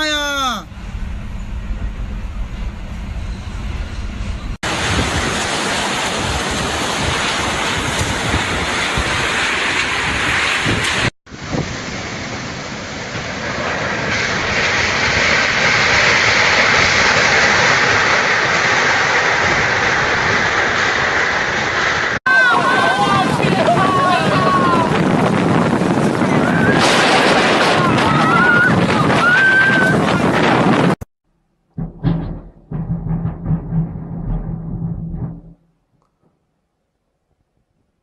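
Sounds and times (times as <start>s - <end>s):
wind buffeting microphone: 1.1s - 12.2s, 22.5s - 31.0s.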